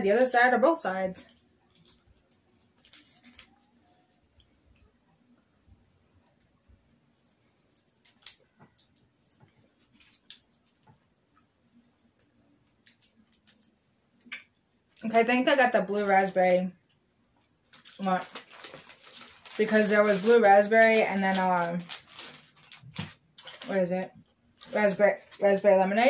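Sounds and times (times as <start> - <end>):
fruit snack peeled off paper: 1.3 - 4.2, 7.7 - 10.6, 17.8 - 23.8.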